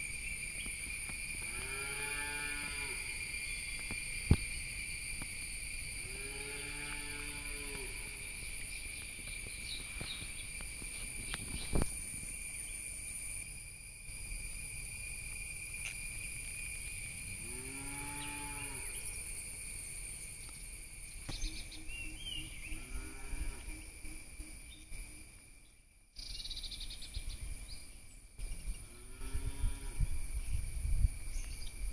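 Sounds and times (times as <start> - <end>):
high-pitched insect drone: 0.0 - 31.9.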